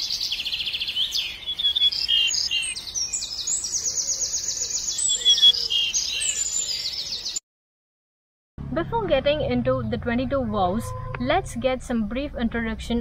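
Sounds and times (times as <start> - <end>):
songbirds chirping and trilling: 0.0 - 7.4.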